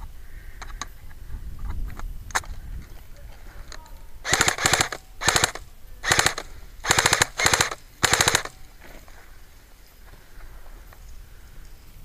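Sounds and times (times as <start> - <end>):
airsoft rifle firing bursts: 4.2 - 8.6.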